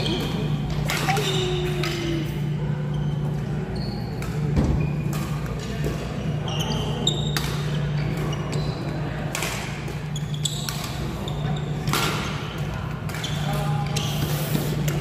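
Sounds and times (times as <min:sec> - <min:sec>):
shoe squeaks on court floor: 0:02.9 - 0:05.4, 0:06.0 - 0:09.1, 0:10.1 - 0:12.6, 0:13.2 - 0:14.8.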